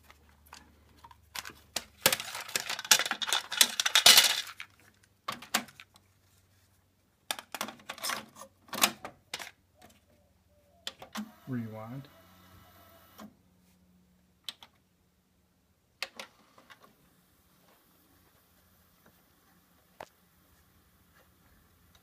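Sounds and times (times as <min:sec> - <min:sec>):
plastic cassette tape clattering: 0:00.5 - 0:06.0, 0:07.3 - 0:09.6.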